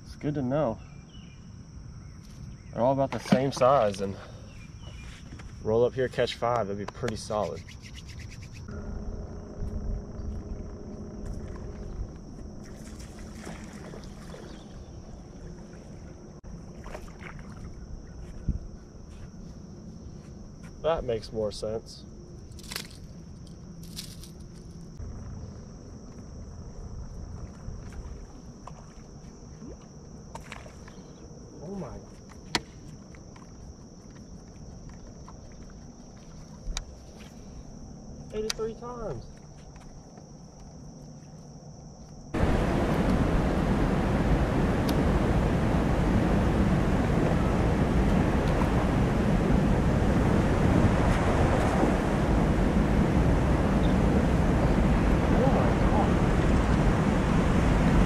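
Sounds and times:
insects droning: 0:00.0 - 0:58.0
high-pitched insect drone: 0:07.3 - 0:16.4
boat engine rumbling: 0:42.4 - 0:58.0.

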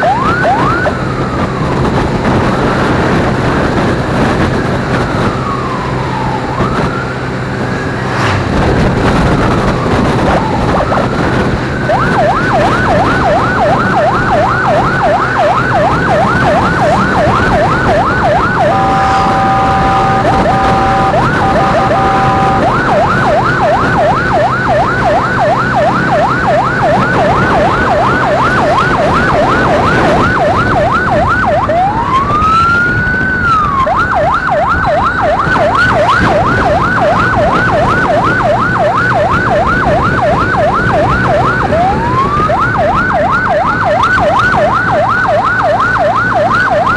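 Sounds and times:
emergency siren yelping: 0:00.0 - 0:46.9
road and wind noise: 0:00.0 - 0:46.9
siren wail: 0:00.0 - 0:46.9
multi-tone horn blast: 0:18.6 - 0:22.8.

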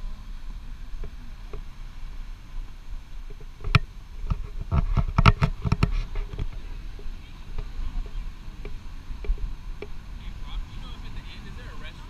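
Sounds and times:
wind rumble on microphone: 0:00.0 - 0:12.0.

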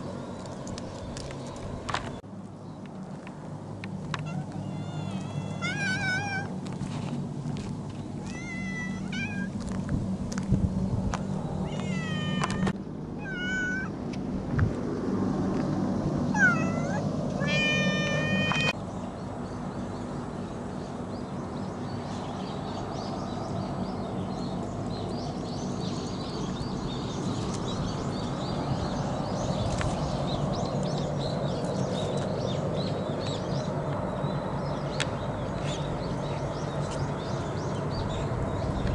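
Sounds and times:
faint outdoor background sound: 0:00.0 - 0:38.9
cats meowing: 0:04.2 - 0:06.5, 0:08.2 - 0:09.6, 0:11.6 - 0:13.9, 0:16.3 - 0:18.8.

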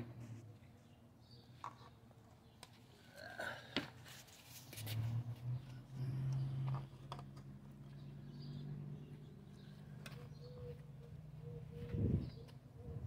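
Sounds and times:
low engine hum: 0:04.8 - 0:13.0.

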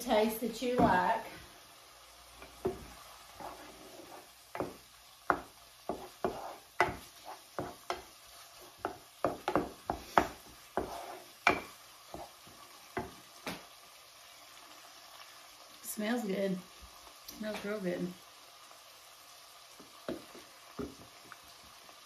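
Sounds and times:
wooden spatulas scraping skillet: 0:02.4 - 0:12.6.

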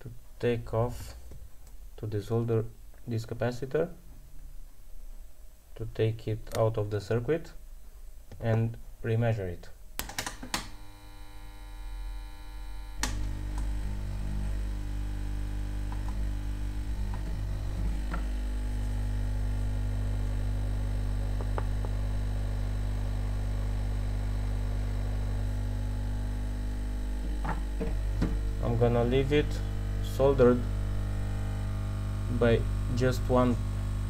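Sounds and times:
electrical mains hum: 0:00.0 - 0:34.0.

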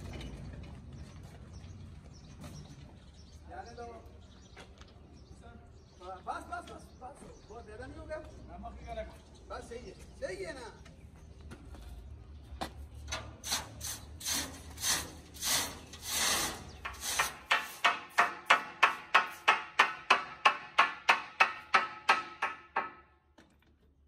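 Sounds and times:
hammer striking wedges: 0:16.8 - 0:23.1.

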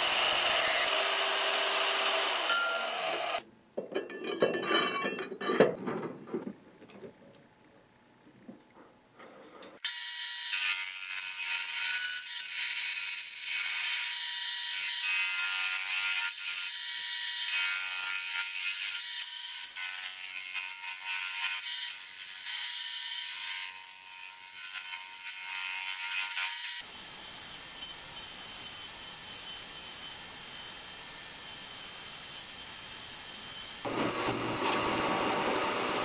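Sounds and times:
cutting tool screeching on steel: 0:25.6 - 0:33.9.

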